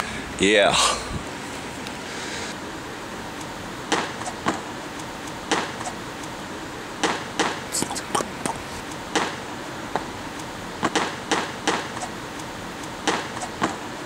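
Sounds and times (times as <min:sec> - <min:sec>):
steady hiss: 0:00.0 - 0:14.0
short bursts of voices: 0:07.7 - 0:08.7.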